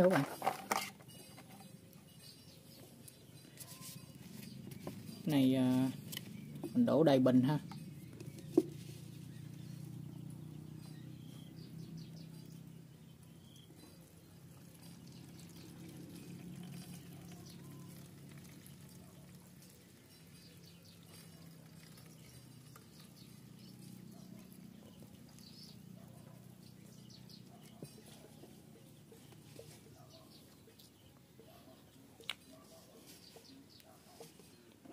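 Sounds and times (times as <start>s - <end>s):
fuel trickling into tank: 14.5s - 23.3s.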